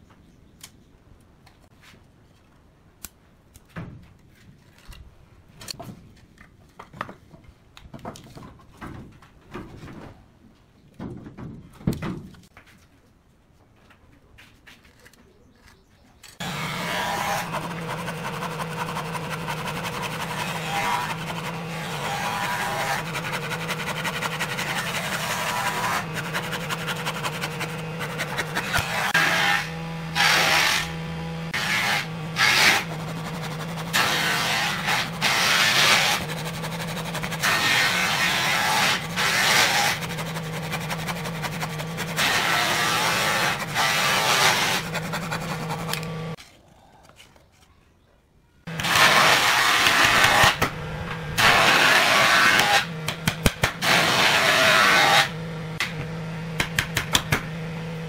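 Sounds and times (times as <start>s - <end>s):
hand saw cutting wood: 16.4s - 46.4s, 48.7s - 56.0s.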